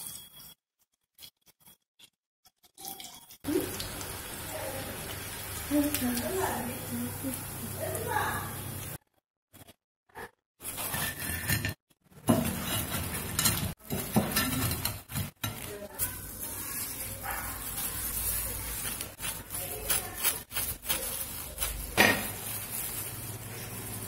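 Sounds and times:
plastic glove rustling: 12.5s - 24.0s.

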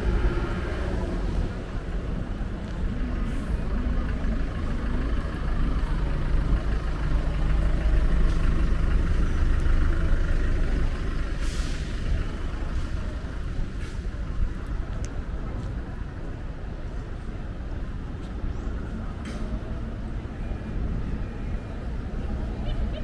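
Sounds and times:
heavy vehicle engine running: 0.0s - 22.9s
street traffic: 0.0s - 23.0s
hiss of air: 11.3s - 12.1s.

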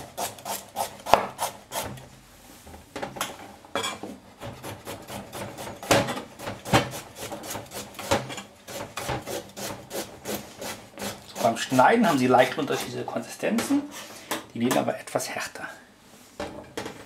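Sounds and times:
knife slicing carrots: 0.0s - 2.0s.

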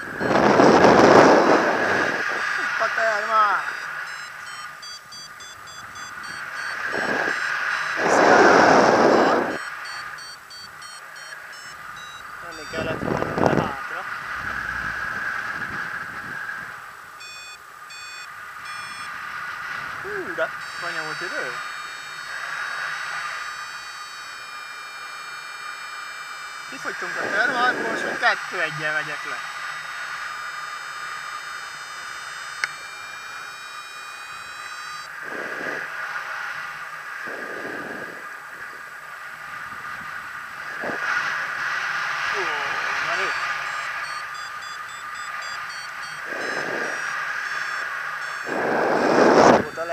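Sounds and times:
rush of air: 0.0s - 2.6s, 6.8s - 9.6s, 35.2s - 36.3s, 37.2s - 38.7s, 48.4s - 49.7s
variometer short beeps: 0.0s - 2.6s, 3.5s - 15.2s, 17.2s - 19.2s, 20.0s - 35.2s, 42.4s - 49.9s
wind on microphone: 0.0s - 2.9s, 5.6s - 9.6s, 12.4s - 16.9s, 27.0s - 28.3s, 35.1s - 36.3s, 37.2s - 41.4s, 46.0s - 49.9s
thin high whine: 0.0s - 49.9s.

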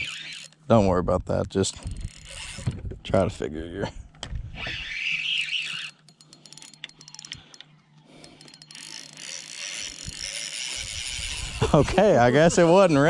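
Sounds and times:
fishing reel clicking: 0.0s - 0.6s, 1.7s - 2.7s, 4.8s - 13.0s
fishing reel whirring: 0.0s - 0.6s, 1.8s - 2.8s, 4.5s - 13.0s.

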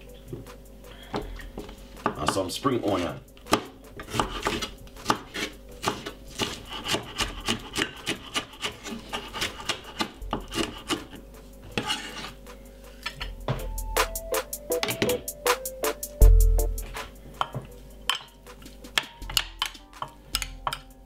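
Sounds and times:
knife chopping on wooden board: 3.5s - 12.1s.

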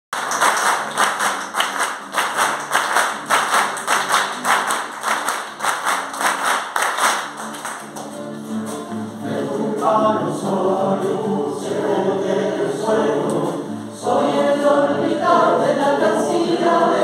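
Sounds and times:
hands clapping a beat: 0.1s - 9.2s
strummed acoustic guitar: 0.4s - 17.0s.

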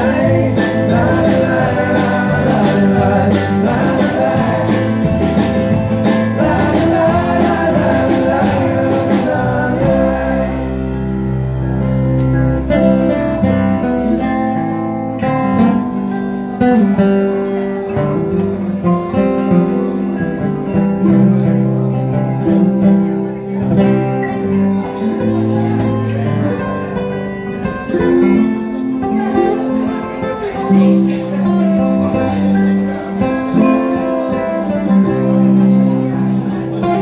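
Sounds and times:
voices singing: 0.0s - 11.9s
mandolin: 0.0s - 37.0s
strummed acoustic guitars: 0.0s - 37.0s
upright bass: 0.0s - 37.0s.

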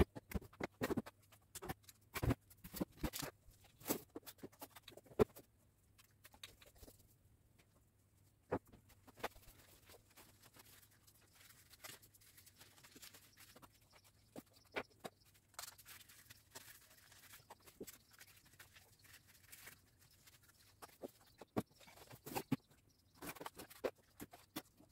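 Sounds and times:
packaging rustling: 9.1s - 22.6s.

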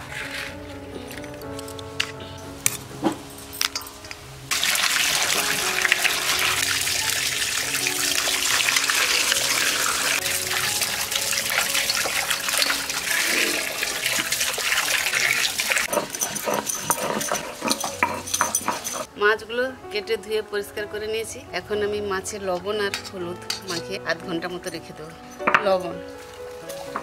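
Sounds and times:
water running and splashing: 3.7s - 19.1s.

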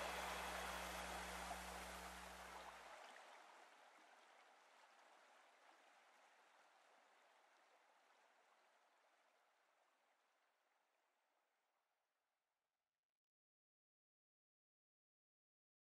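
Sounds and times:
faint hiss: 0.0s - 2.6s.

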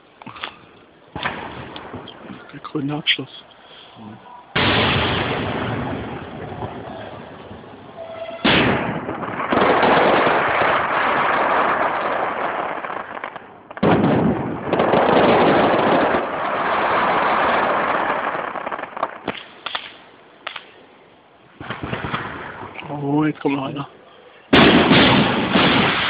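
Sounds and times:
fireworks bangs: 1.1s - 3.2s, 4.5s - 20.8s, 21.5s - 23.6s, 24.5s - 26.0s
fireworks crackling bursts: 4.6s - 23.8s, 24.5s - 26.0s.

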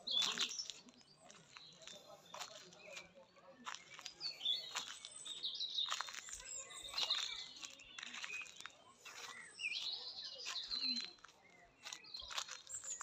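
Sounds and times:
songbirds chirping: 0.0s - 13.0s.

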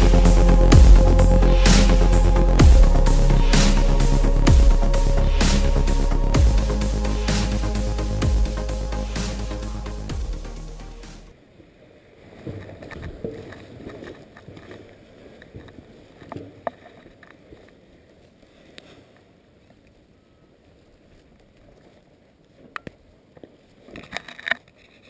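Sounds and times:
background music: 0.0s - 11.3s.

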